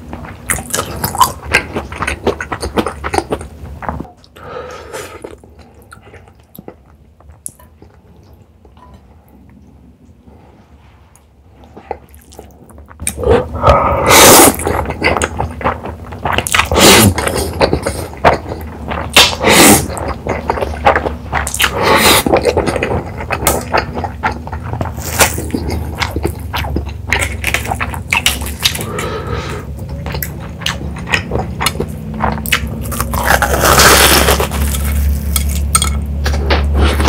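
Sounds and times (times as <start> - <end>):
wet chewing: 11.7 - 37.0.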